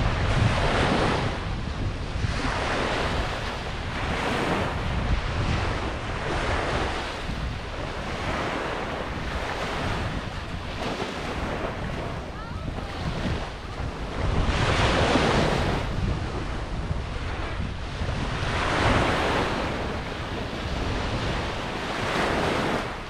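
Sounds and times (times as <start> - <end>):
ocean surf on beach: 0.0 - 23.0
wind rumble on microphone: 0.0 - 23.0.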